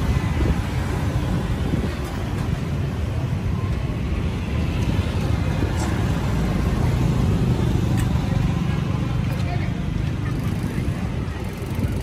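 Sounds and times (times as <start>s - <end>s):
low street rumble: 0.0s - 12.0s
faint voices: 5.4s - 12.0s.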